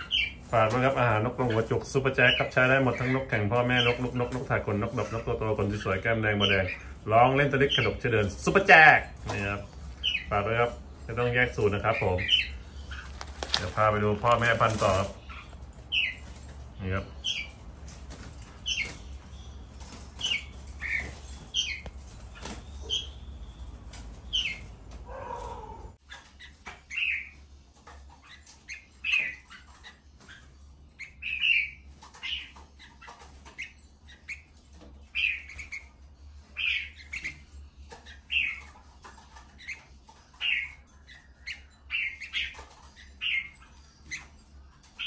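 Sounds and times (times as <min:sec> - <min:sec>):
birds chirping: 0:00.0 - 0:45.0.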